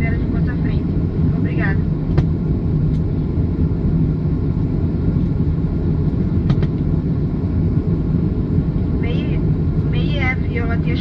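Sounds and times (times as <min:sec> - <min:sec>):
low rumble in plane cabin: 0:00.0 - 0:11.0.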